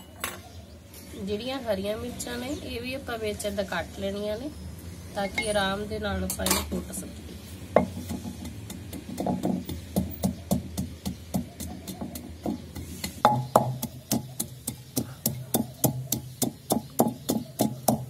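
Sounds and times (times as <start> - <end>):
pestle pounding in mortar: 7.7 - 18.0.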